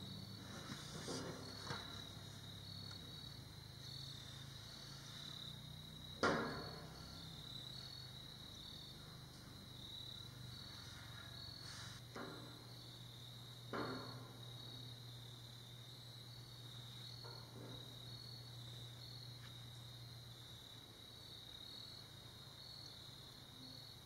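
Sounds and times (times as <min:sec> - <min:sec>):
insects chirping: 0:00.0 - 0:24.0
sharp knocks: 0:06.2 - 0:07.0, 0:13.7 - 0:14.4.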